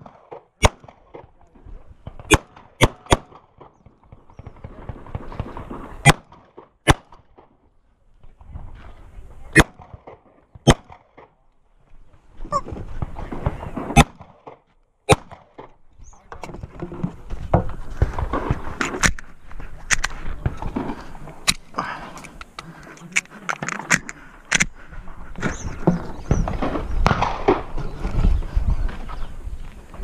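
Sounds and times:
pistol shots: 0.0 - 1.2, 2.2 - 3.6, 4.8 - 7.3, 9.6 - 11.2, 13.4 - 15.6, 27.0 - 27.7.

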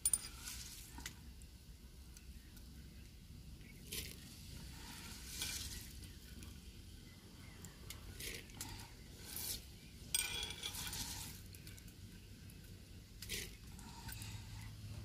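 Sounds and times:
wet rustle of lentils by hand: 0.3 - 1.0, 3.8 - 6.6, 9.2 - 9.8, 10.6 - 11.8.

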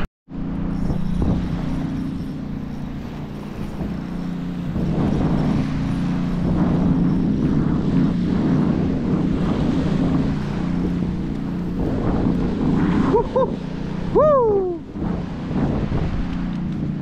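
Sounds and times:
wind buffeting microphone: 0.0 - 17.0
small surf waves: 0.4 - 17.0.

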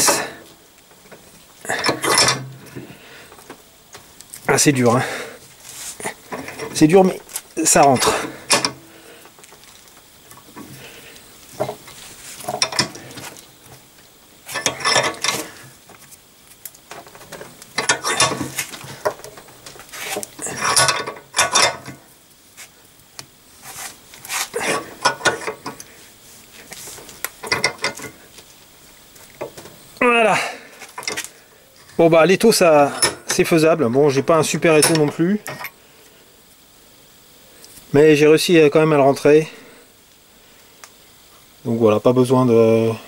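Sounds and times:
bench vise metallic clinking: 1.7 - 2.6, 20.5 - 22.0.

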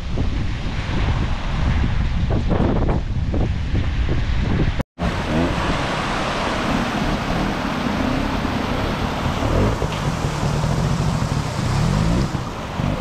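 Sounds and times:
wind on microphone: 0.0 - 13.0
motorcycle engine at low revs: 5.0 - 13.0
rushing stream: 5.0 - 13.0.

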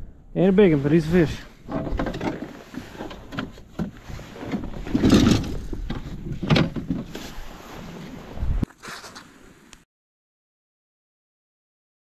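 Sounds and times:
knocks and thumps on kayak: 1.7 - 7.5.

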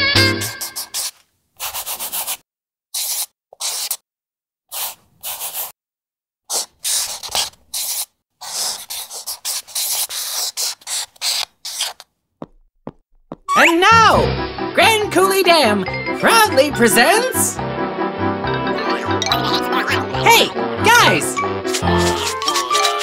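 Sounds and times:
pencil scribbling on paper: 0.5 - 4.0, 4.7 - 5.8, 6.5 - 12.0, 20.9 - 23.0.

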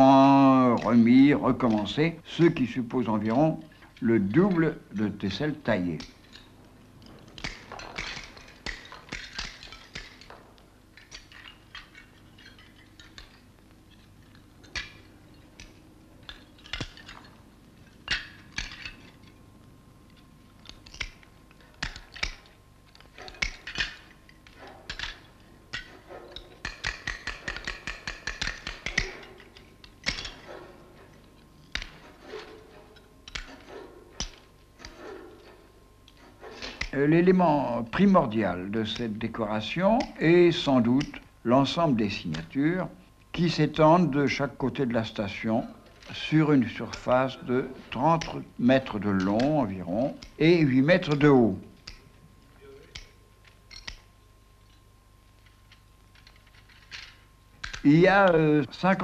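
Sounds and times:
tiles clicking and clinking: 3.3 - 19.4, 20.0 - 37.0, 49.2 - 58.4.

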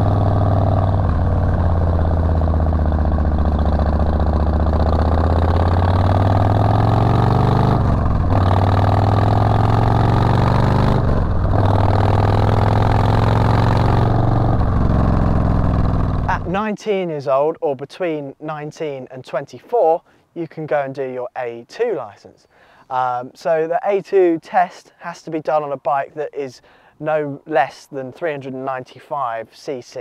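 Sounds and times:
motorcycle engine running: 0.0 - 16.5.

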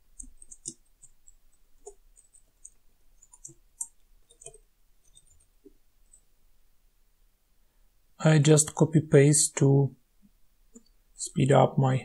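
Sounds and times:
faint keyboard typing: 0.0 - 6.4.

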